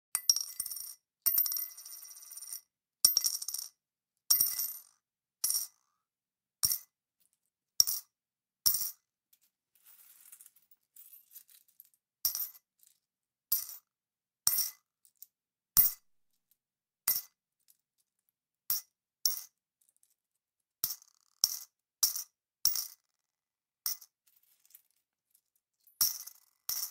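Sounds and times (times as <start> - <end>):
coins clinking into a pot: 9.8 - 12.6, 25.9 - 26.9.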